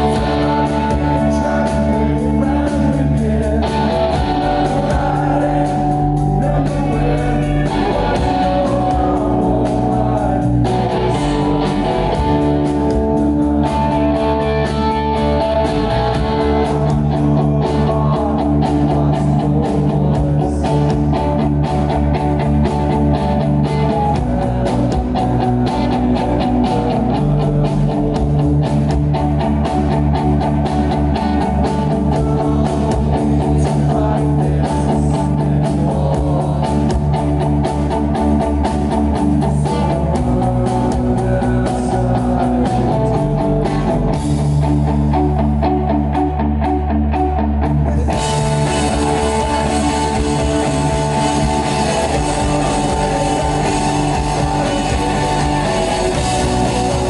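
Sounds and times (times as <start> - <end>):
bass guitar: 0.0 - 57.0
electric guitar: 0.0 - 57.0
drum kit beat: 48.1 - 57.0.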